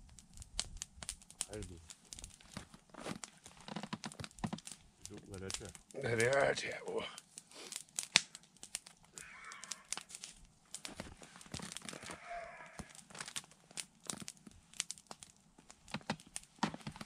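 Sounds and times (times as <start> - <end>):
campfire crackling and popping: 0.0 - 17.0.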